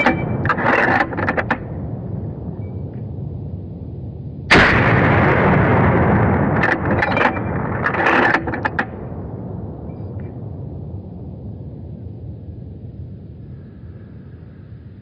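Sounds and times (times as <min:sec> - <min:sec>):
sharp clicks and knocks: 0:00.0 - 0:01.8, 0:06.5 - 0:09.1
gunshot with rolling echo: 0:04.5 - 0:11.2.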